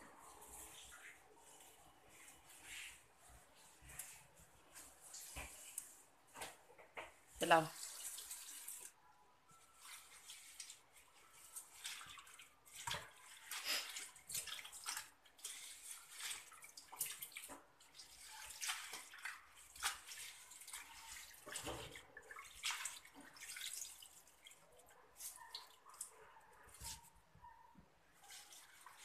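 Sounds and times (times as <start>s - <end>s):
water splashing in plastic basin: 11.5s - 25.6s.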